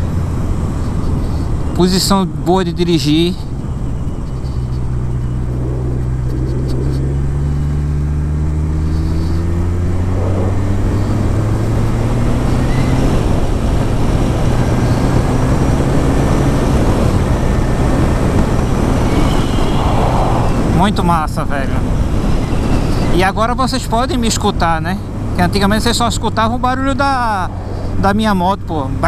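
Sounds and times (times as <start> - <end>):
wind and road noise: 0.0 - 29.0
motorcycle engine accelerating: 3.4 - 21.0, 25.1 - 29.0.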